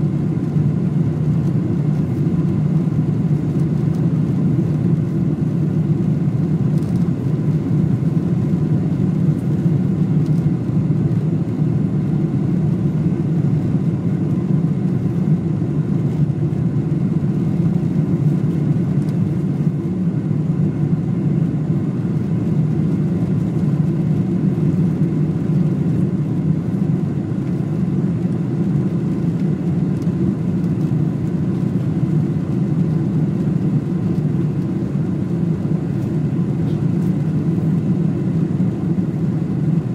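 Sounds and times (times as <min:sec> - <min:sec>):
airliner cabin rumble: 0:00.0 - 0:39.9.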